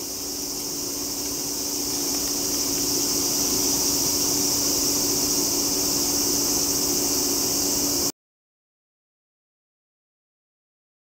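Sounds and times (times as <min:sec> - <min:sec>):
insects buzzing: 0:00.0 - 0:08.1.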